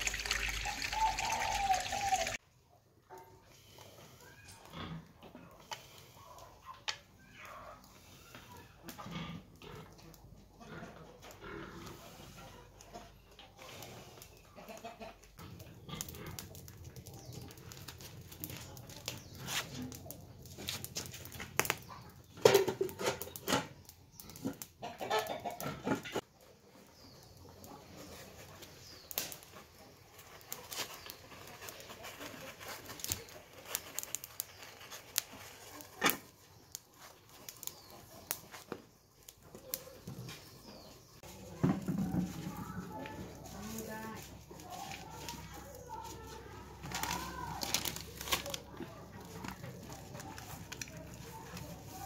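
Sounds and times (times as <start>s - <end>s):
wood fire crackling: 0.0s - 2.4s, 15.2s - 24.7s, 26.2s - 52.0s
animal calls: 0.1s - 2.4s.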